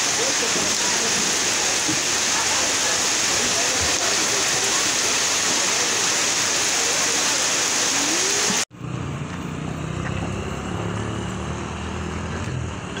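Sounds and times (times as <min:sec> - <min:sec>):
heavy rain hissing: 0:00.0 - 0:08.7.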